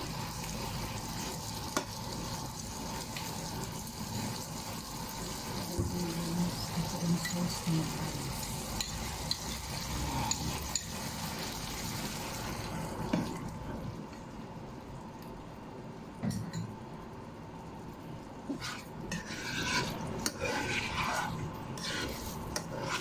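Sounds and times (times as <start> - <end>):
meat and peppers sizzling in pan: 0.0 - 13.7, 18.5 - 23.0.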